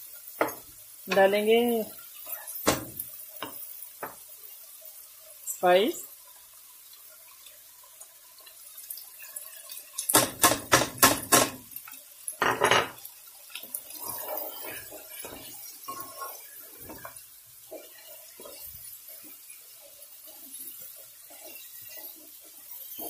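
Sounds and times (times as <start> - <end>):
spatula stirring meat in pot: 0.0 - 23.0
kitchenware clinking and knocking: 10.1 - 11.6, 12.4 - 13.0.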